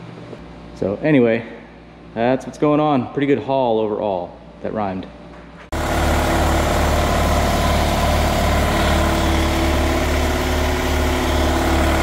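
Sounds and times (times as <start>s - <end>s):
air compressor running: 5.3s - 12.0s.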